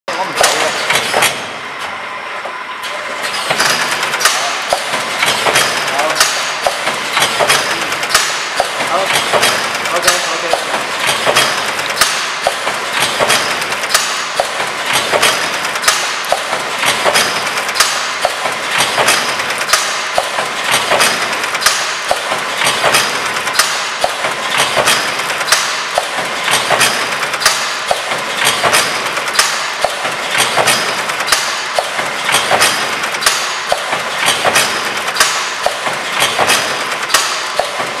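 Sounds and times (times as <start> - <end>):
machine clicks and knocks: 0.1 - 2.0, 2.8 - 38.0
packing machine whirring: 0.1 - 38.0
strong machine knock: 3.3 - 38.0.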